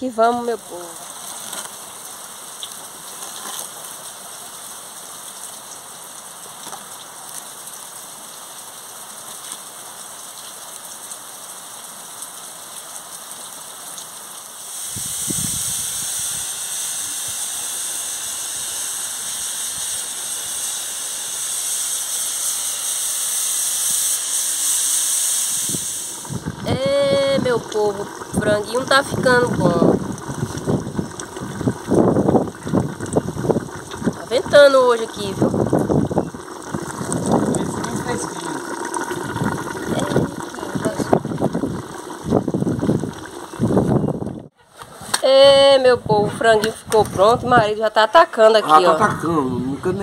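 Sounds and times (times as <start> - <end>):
wood fire hissing and crackling: 0.0 - 45.4
wind rumble on microphone: 14.9 - 16.5, 25.7 - 38.3, 39.1 - 47.8.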